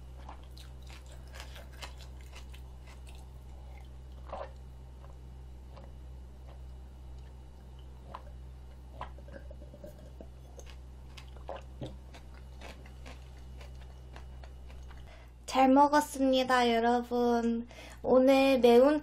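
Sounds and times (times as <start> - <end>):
person swallowing water: 8.0 - 10.4.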